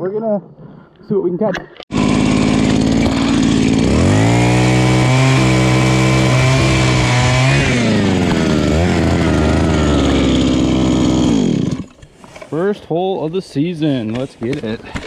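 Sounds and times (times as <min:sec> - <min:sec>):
ice auger engine running: 0:01.9 - 0:12.0.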